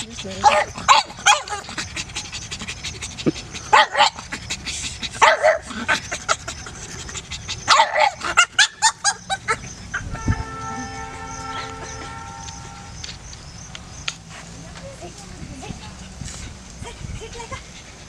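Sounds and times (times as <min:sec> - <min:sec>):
puppy barking and yipping: 0:00.2 - 0:02.8, 0:03.6 - 0:04.4, 0:05.0 - 0:10.2.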